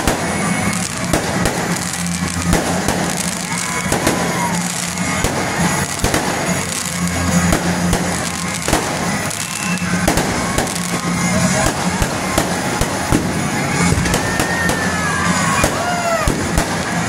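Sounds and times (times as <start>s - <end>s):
fireworks bangs and crackles: 0.0s - 17.0s
music playing: 0.0s - 17.0s.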